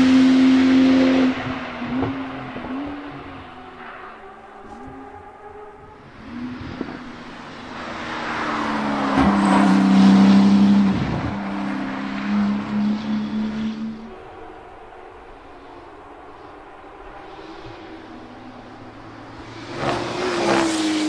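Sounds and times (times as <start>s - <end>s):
sports car engine passing: 0.0s - 21.0s.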